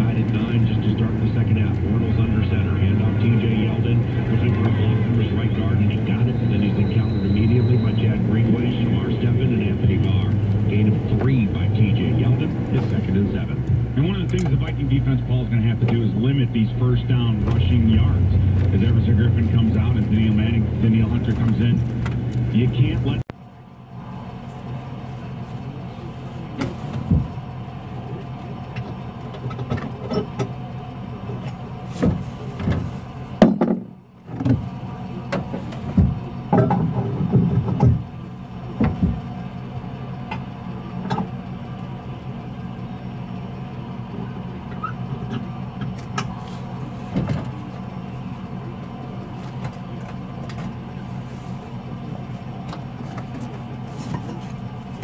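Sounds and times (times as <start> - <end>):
truck engine idling: 0.0 - 55.0
knocks and thumps of gear: 32.0 - 34.7, 35.3 - 38.1, 38.8 - 39.3.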